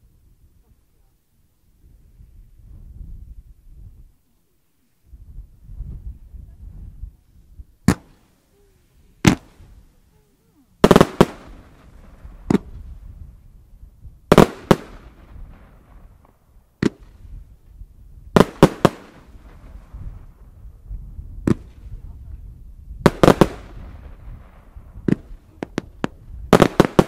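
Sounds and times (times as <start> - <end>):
fireworks bangs: 7.8 - 8.3, 9.2 - 9.8, 10.8 - 13.1, 14.2 - 17.4, 18.3 - 20.5, 21.4 - 22.1, 23.0 - 27.0.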